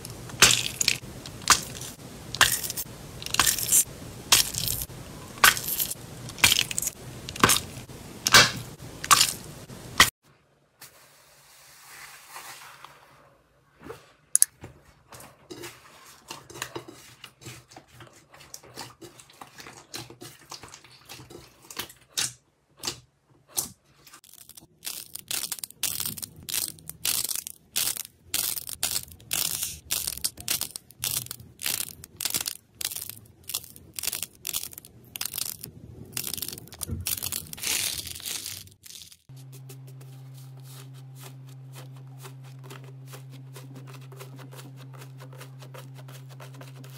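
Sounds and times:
slime crackling and popping: 24.2 - 39.3.

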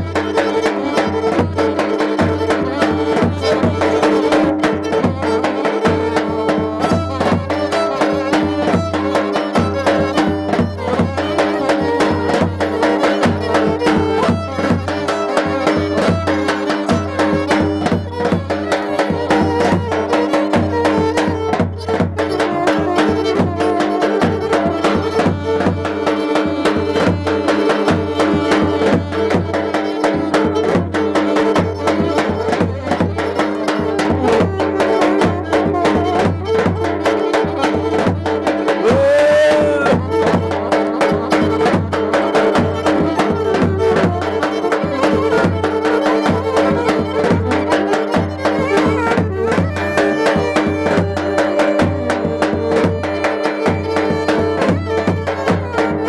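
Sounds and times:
steady beat: 0.0 - 56.0
violin: 0.0 - 56.0
saxophone: 21.6 - 25.4, 26.3 - 55.9.

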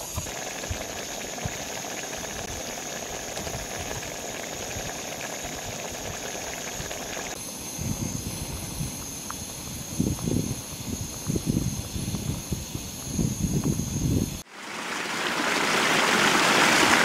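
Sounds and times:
water boiling and bubbling: 0.0 - 7.4, 14.4 - 17.0
sauce simmering with hiss: 0.0 - 9.8.

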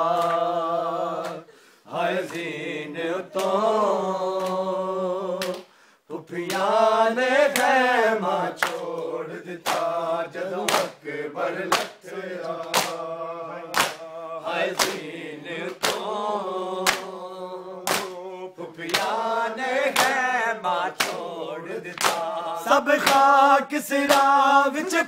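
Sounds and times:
hands slapping chests: 0.0 - 0.6, 1.2 - 1.5, 2.2 - 2.6, 3.3 - 3.6, 4.3 - 4.7, 5.4 - 5.8, 6.4 - 6.8, 7.5 - 7.8, 8.6 - 10.0, 10.6 - 11.0, 11.7 - 13.1, 13.7 - 16.2, 16.8 - 17.2, 17.8 - 18.2, 18.8 - 20.3, 20.9 - 21.3, 21.9 - 24.4
men chanting in unison: 0.0 - 25.0.

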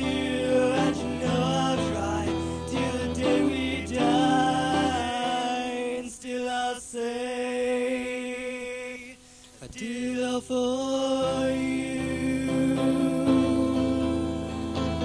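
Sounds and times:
acoustic guitar: 0.0 - 6.2, 11.2 - 15.0
man singing long notes: 0.0 - 15.0.

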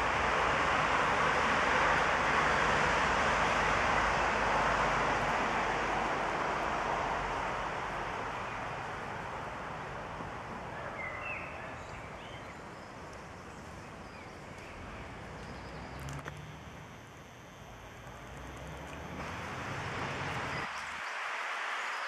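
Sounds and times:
bird chirps: 10.8 - 16.1
flowing water rushing: 17.8 - 22.0.

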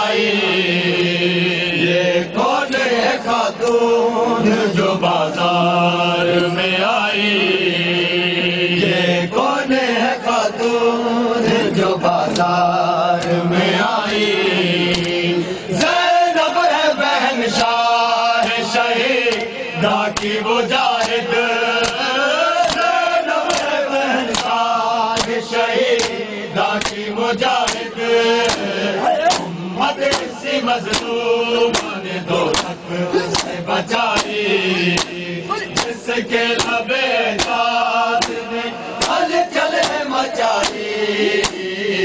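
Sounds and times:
men chanting in unison: 0.0 - 42.0
hands slapping bare chests: 12.2 - 12.5, 14.9 - 15.2, 19.3 - 19.5, 20.1 - 21.2, 21.8 - 25.4, 26.0 - 36.0, 36.6 - 36.8, 37.4 - 41.7.

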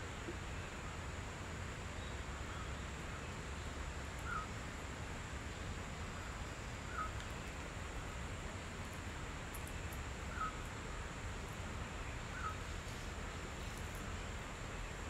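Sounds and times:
outdoor hiss and rumble: 0.0 - 15.0
distant bird calls: 1.9 - 4.6, 5.5 - 8.2, 9.6 - 10.7, 11.8 - 15.0.

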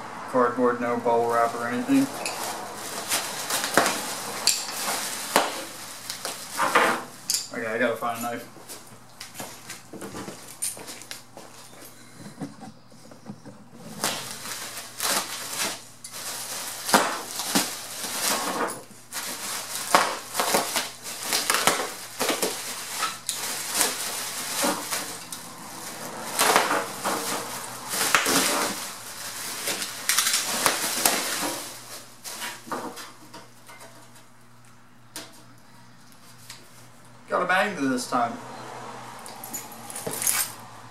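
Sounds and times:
bubble wrap crinkling: 1.2 - 7.3, 13.7 - 33.2.

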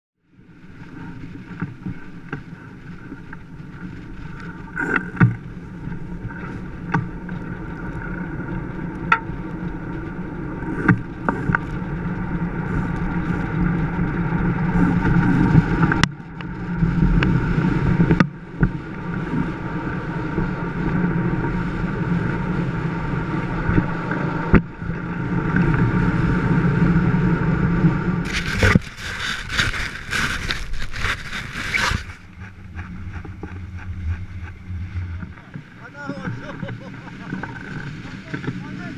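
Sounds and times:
wind on microphone: 0.8 - 38.6
harsh static-like noise: 28.2 - 32.3.

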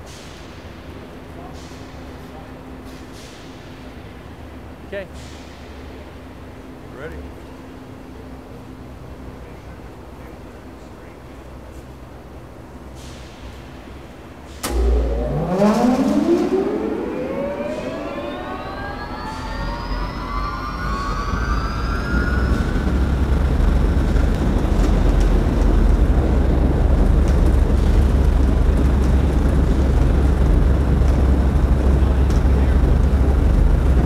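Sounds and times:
industrial fan motor whine: 14.3 - 34.0.

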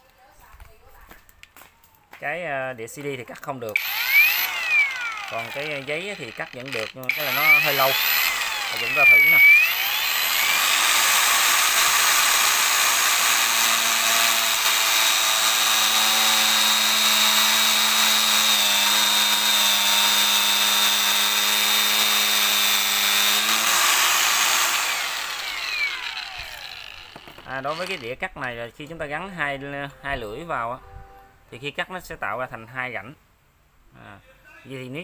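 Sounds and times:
grinder winding down: 3.7 - 28.2
angle grinder whining: 3.8 - 28.2
sanding disc cutting wood: 3.8 - 28.2.

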